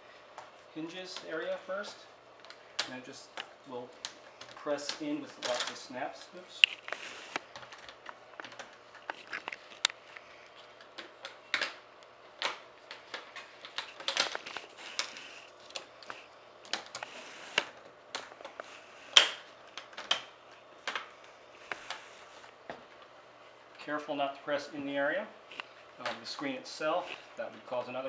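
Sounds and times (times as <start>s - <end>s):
plastic rustles: 6.6s - 11.2s, 12.9s - 19.2s.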